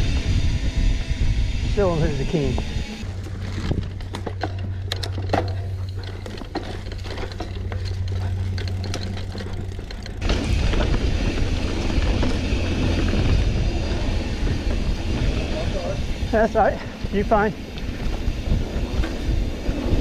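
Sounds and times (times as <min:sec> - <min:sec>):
wind rumble on microphone: 0:00.0 - 0:04.9, 0:09.6 - 0:20.0
bike rattling and clicking: 0:00.0 - 0:20.0
bike tyres rolling on dirt: 0:00.0 - 0:20.0.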